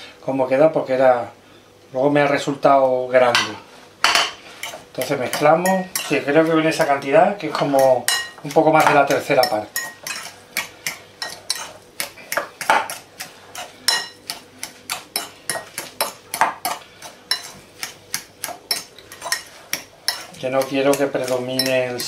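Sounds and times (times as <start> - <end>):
utensil scraping ceramic bowl: 4.6 - 22.0.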